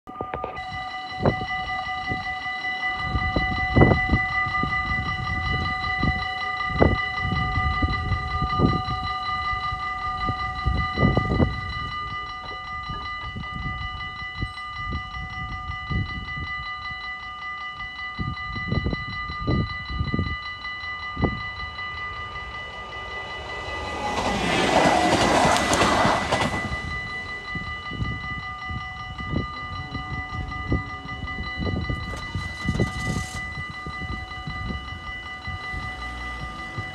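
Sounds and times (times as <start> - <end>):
level crossing bells ringing: 0.1 - 36.9
train rushing past: 20.6 - 28.8, 31.1 - 36.9.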